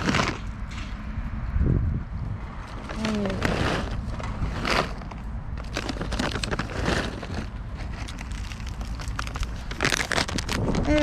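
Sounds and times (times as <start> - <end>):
plastic snack bag crinkling: 2.7 - 11.0.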